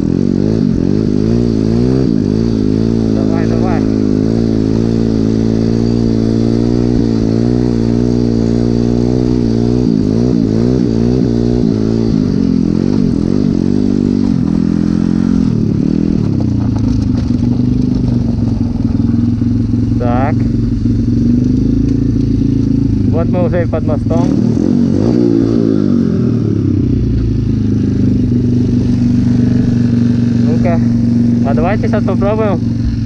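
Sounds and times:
motorcycle engine revving: 0.0 - 33.0.

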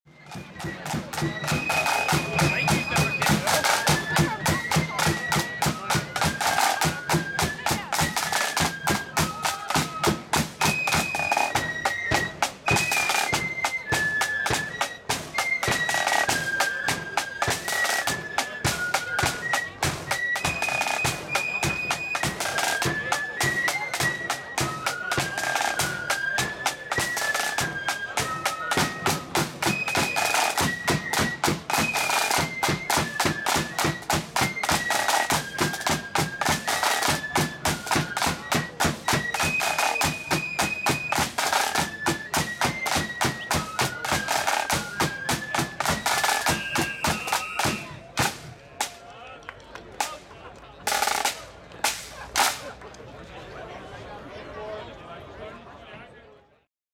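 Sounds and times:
side drum rolls: 0.1 - 49.0.

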